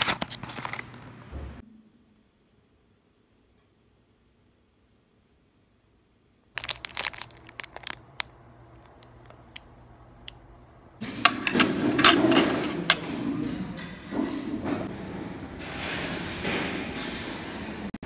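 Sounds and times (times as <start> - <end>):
packet crinkling and clicking: 0.0 - 1.0, 6.5 - 10.4
room noise: 0.0 - 18.0
tableware clinking: 11.0 - 14.9.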